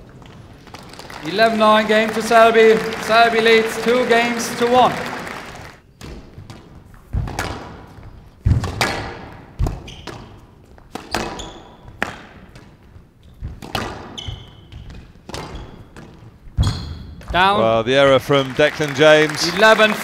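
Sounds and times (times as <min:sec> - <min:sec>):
squash ball struck by rackets: 0:06.0 - 0:12.8, 0:13.4 - 0:14.2, 0:14.8 - 0:16.7
shoe squeaks: 0:09.8 - 0:10.4, 0:11.1 - 0:12.0, 0:14.1 - 0:16.0, 0:16.6 - 0:17.2.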